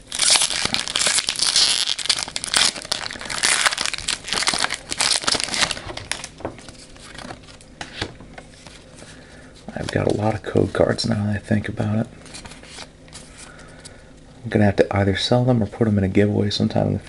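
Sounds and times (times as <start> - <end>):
foil wrapper crinkling: 0.0 - 7.7.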